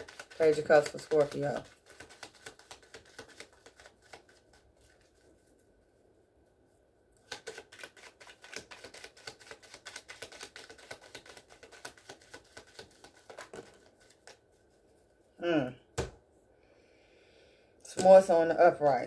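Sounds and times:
cards being shuffled: 0.0 - 5.3, 7.2 - 14.8.

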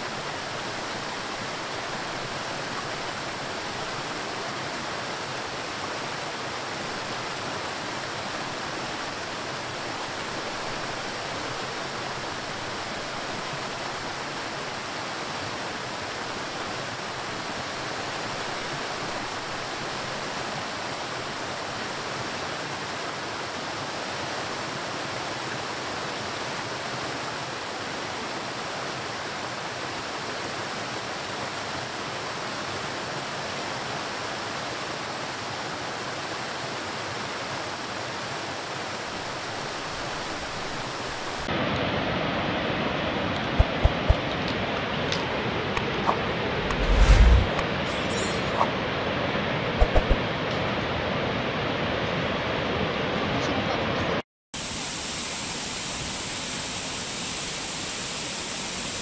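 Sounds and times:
waterfall rushing: 0.0 - 32.6, 36.0 - 41.7.

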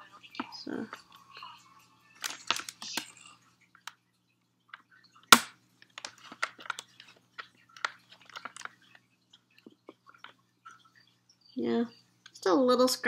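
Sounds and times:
small clicks and crackles: 2.2 - 12.5.

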